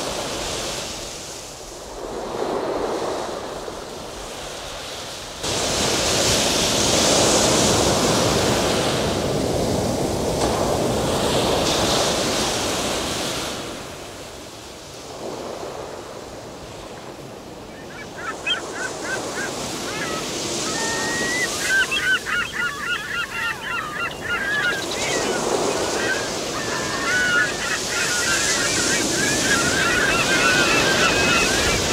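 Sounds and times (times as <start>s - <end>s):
surf washing on sandy beach: 0.0s - 31.9s
wind: 0.0s - 31.9s
birds calling in wavering notes: 17.7s - 31.9s.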